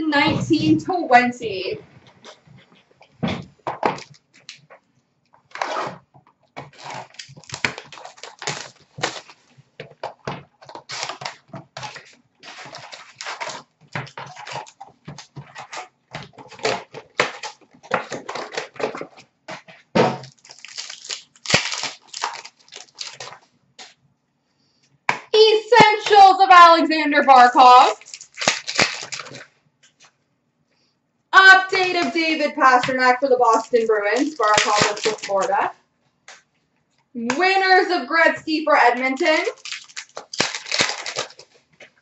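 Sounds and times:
wrappers rustling and tearing: 0:05.4 - 0:06.0, 0:06.6 - 0:24.0, 0:27.4 - 0:30.1, 0:31.4 - 0:35.7, 0:38.8 - 0:42.0
cards being handled: 0:39.2 - 0:42.0.

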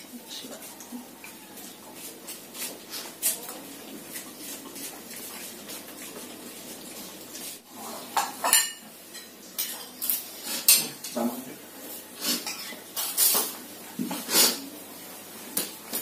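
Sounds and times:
metal spoons clinking on plates: 0:08.2 - 0:11.3, 0:12.4 - 0:13.6.

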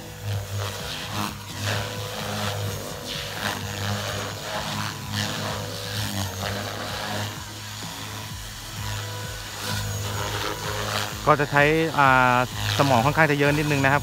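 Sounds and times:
rc helicopter motor hum: 0:00.0 - 0:14.0
rotor blade whooshes: 0:00.0 - 0:14.0.

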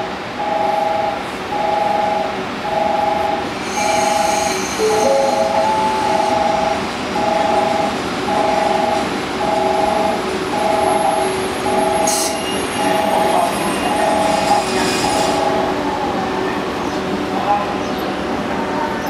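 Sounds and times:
electric train rumbling: 0:00.0 - 0:19.0
two-tone electronic warning tone: 0:00.4 - 0:03.5, 0:04.8 - 0:14.6.

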